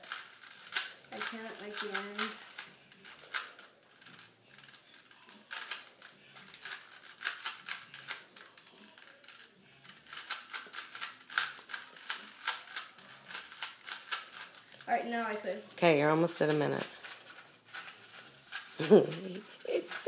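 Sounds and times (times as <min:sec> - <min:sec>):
puzzle cube plastic clicks: 0:00.0 - 0:14.9.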